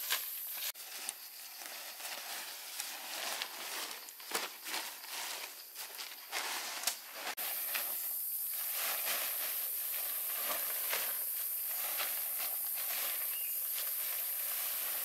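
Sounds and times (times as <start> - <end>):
plastic tarp rustling and crinkling: 0.0 - 15.0
high-pitched insect drone: 7.4 - 15.0.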